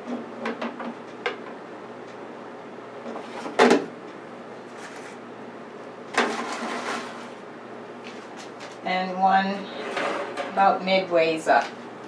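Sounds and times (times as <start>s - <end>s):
metal tray knocking and scraping: 9.7s - 10.6s.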